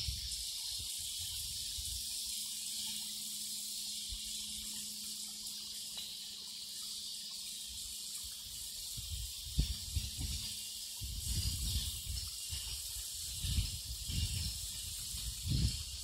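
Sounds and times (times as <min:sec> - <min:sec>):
wind rumble on microphone: 0:00.0 - 0:02.1, 0:08.9 - 0:16.0
waterfall splashing into pond: 0:00.0 - 0:16.0.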